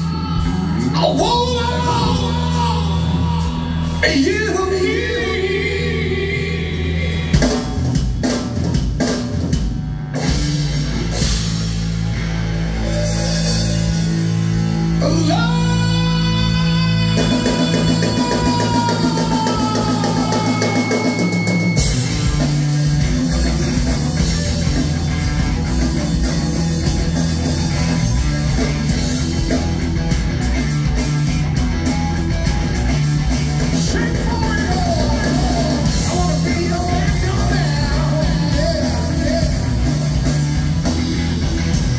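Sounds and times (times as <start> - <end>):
person singing: 0.0 - 7.7, 15.0 - 21.8, 33.6 - 40.0
rock band playing: 0.0 - 41.9.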